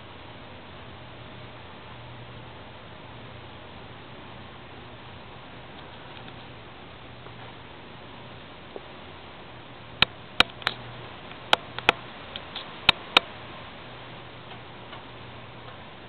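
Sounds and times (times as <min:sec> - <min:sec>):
steady low hum: 0:00.0 - 0:16.0
sharp clicks: 0:10.0 - 0:13.4.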